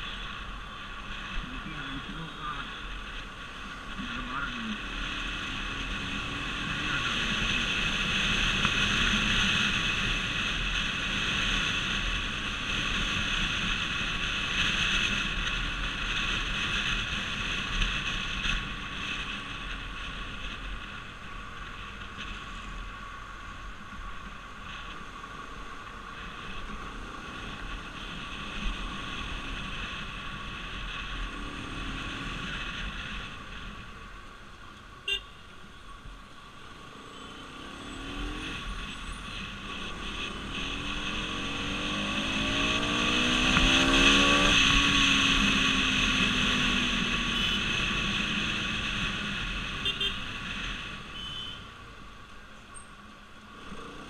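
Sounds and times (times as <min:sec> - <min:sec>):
road and wind noise: 0:00.0 - 0:54.0
motorcycle engine running: 0:24.9 - 0:51.4.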